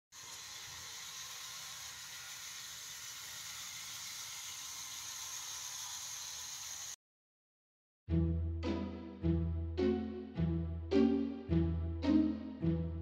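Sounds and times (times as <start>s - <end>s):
model train whirring: 0.1s - 7.0s.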